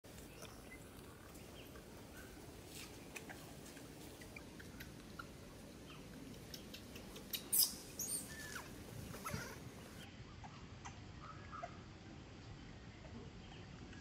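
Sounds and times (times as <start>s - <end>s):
dry leaves rustling: 0.1s - 6.0s
baby monkey squeaking: 6.8s - 9.6s.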